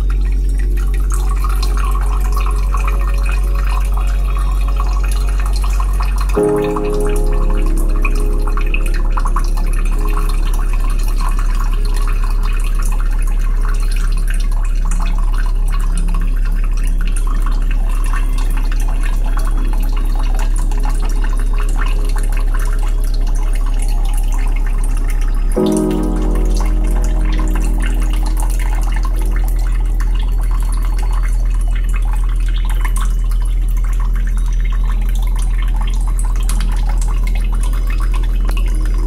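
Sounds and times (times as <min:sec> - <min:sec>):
steady deep tone: 0:00.0 - 0:13.8, 0:17.0 - 0:33.7
water trickling and dripping: 0:00.0 - 0:39.0.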